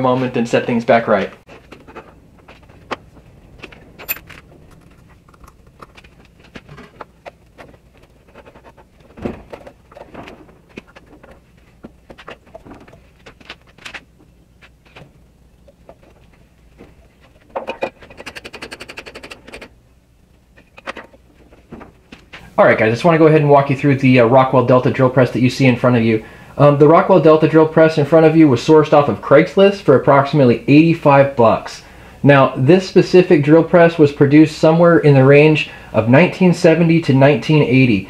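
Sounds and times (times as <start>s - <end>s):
fast rattling clicks: 17.2s - 19.8s.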